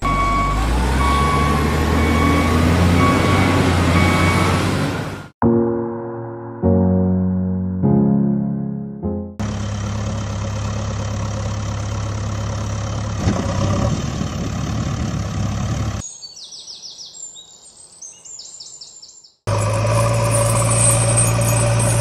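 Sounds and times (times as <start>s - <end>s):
heavy vehicle engine running: 0.0s - 5.4s, 9.4s - 16.0s, 19.5s - 22.0s
birds chirping: 15.9s - 19.4s.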